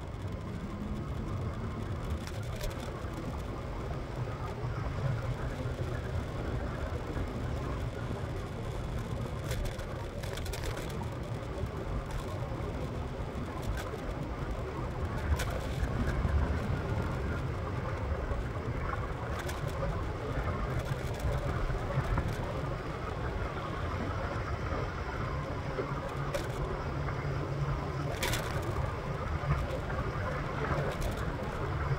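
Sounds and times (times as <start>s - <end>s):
scattered clicks: 9.4s - 11.3s, 26.0s - 26.7s, 28.1s - 31.9s.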